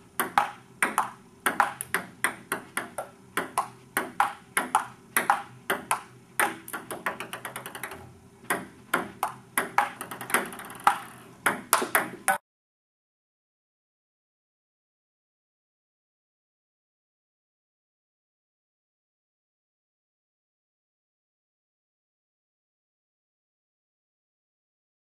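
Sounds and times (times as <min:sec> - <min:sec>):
ball bouncing rapidly: 0:00.2 - 0:12.4
table tennis ball hits: 0:00.2 - 0:12.4.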